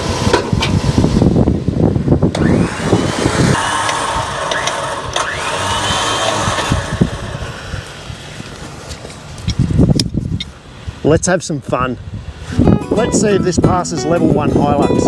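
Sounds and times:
electric winch motor whine: 2.3 - 8.1.

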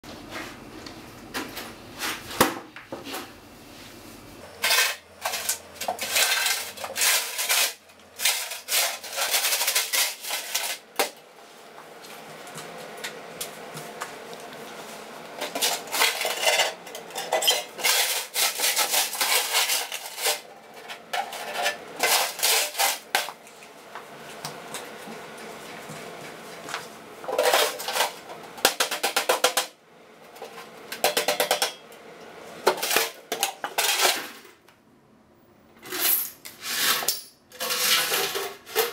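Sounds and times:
metal tin clattering and rattling: 4.6 - 10.9, 15.4 - 23.3, 27.3 - 29.7, 31.0 - 31.8, 32.7 - 34.4, 36.8 - 38.9.

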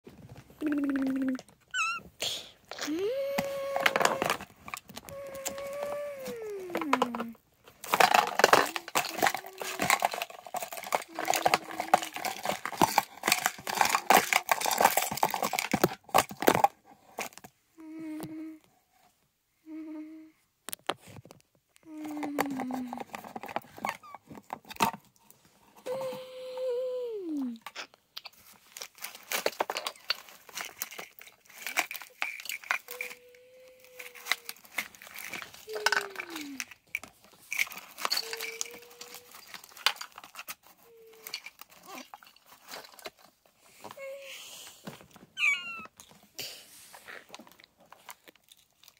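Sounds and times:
person humming: 0.6 - 4.4, 5.0 - 7.4, 8.0 - 10.2, 10.9 - 12.6, 17.8 - 18.7, 19.7 - 20.4, 21.8 - 23.2, 25.8 - 27.6, 32.8 - 34.7, 35.7 - 36.7, 38.1 - 39.5
plastic bag crinkling and rustling: 2.9 - 17.5, 28.2 - 48.9.

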